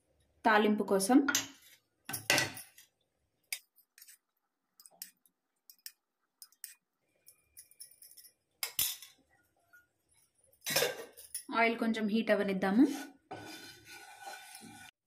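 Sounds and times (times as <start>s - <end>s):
spoon clinking on metal: 4.8s - 9.2s.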